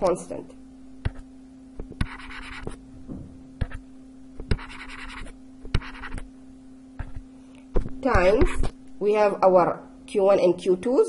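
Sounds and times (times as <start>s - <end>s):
steady low hum: 0.0s - 11.0s
stylus scratching on pen tablet: 1.0s - 1.2s, 1.8s - 2.8s, 3.6s - 3.8s, 4.4s - 6.3s, 7.0s - 7.2s, 8.1s - 8.8s.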